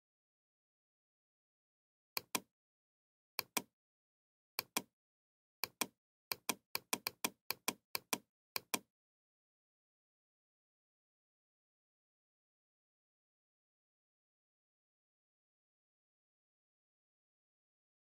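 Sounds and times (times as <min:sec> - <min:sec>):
computer mouse clicking: 0:02.2 - 0:02.5, 0:03.4 - 0:03.7, 0:04.6 - 0:04.9, 0:05.6 - 0:08.9.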